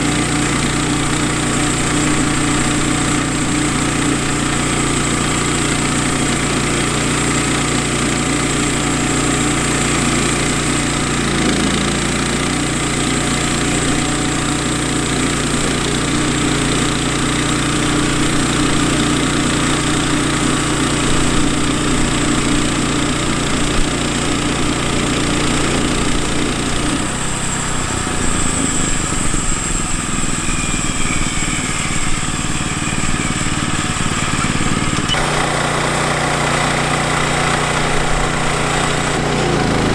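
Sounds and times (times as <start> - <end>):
gas engine running under load: 0.0 - 39.9
band blade sawing through log: 34.1 - 39.9.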